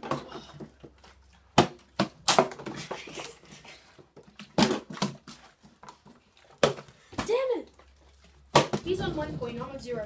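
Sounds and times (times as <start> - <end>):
plastic bottles landing on desk: 1.5 - 3.1, 4.4 - 5.4, 6.6 - 7.4, 8.5 - 9.1.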